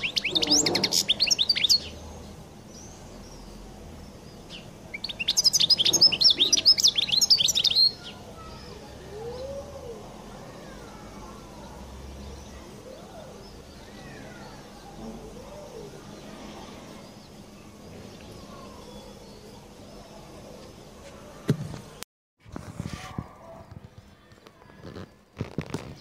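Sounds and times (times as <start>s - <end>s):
bird twittering: 0.0s - 2.1s, 4.5s - 9.5s.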